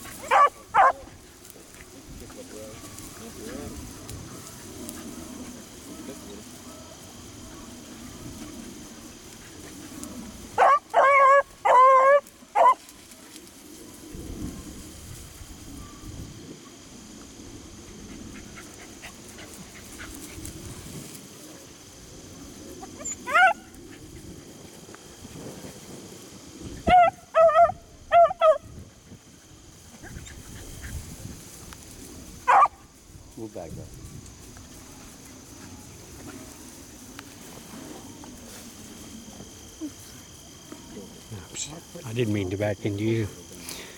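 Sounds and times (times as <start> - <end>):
dog yelping: 0.2 - 1.0, 10.6 - 12.8, 22.9 - 23.7, 26.8 - 28.6, 32.5 - 32.7
beagle baying: 0.2 - 1.1, 10.6 - 12.8, 23.0 - 23.7, 26.8 - 28.7, 32.5 - 32.8.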